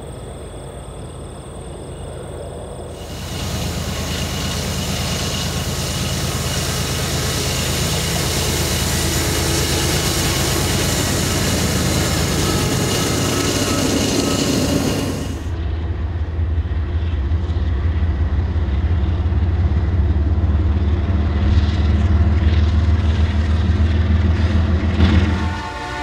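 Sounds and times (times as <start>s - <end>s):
diesel locomotive engines droning: 0.0s - 26.0s
freight train passing close: 0.0s - 26.0s.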